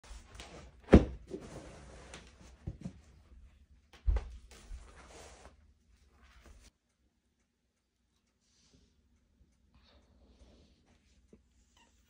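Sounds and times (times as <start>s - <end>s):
exercise mat thumping on floor: 0.9s - 1.2s.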